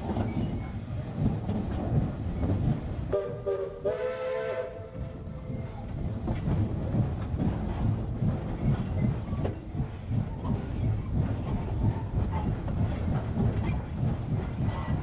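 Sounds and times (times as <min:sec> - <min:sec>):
train rumble and clickety-clack: 0:00.0 - 0:15.0
steam whistle blast: 0:03.1 - 0:04.9.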